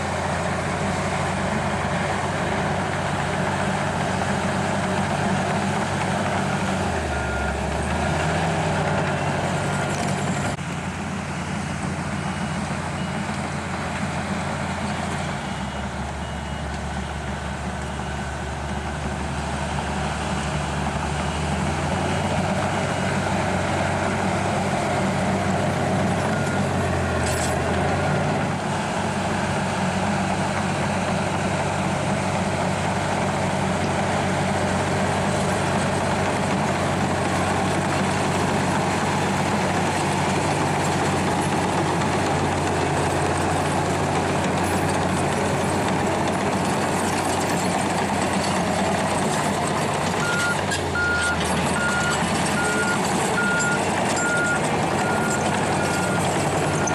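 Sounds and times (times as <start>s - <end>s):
bulldozer diesel engine: 0.0s - 56.9s
reversing alarm beeping: 15.4s - 16.8s, 50.2s - 56.9s.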